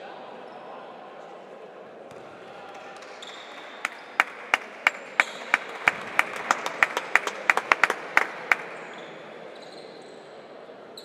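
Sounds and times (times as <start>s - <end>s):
spectators clapping in rhythm: 2.7s - 9.0s.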